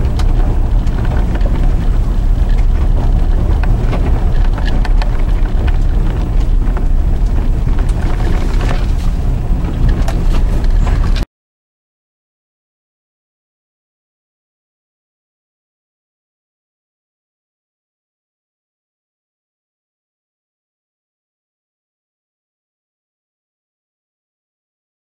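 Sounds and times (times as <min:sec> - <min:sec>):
tyres rumbling on road: 0:00.0 - 0:11.3.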